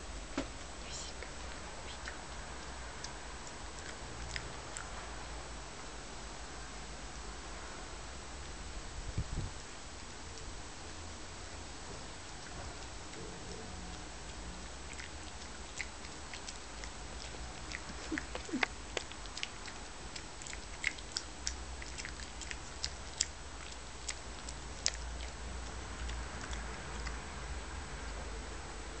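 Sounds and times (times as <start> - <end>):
dog chewing with crunching clicks: 2.0 - 5.0, 12.2 - 27.4.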